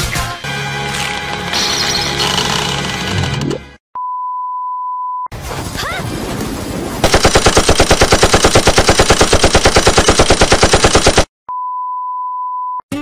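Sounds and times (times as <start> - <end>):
rapid sharp bangs: 7.0 - 11.3.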